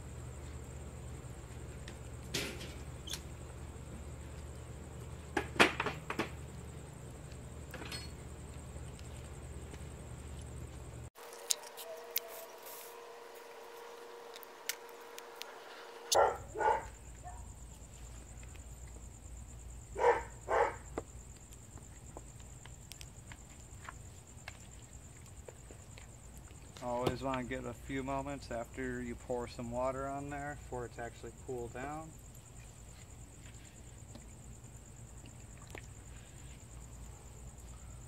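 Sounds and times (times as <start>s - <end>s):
crickets chirring: 0.0s - 38.0s
dog barking: 16.1s - 17.5s, 20.0s - 20.9s.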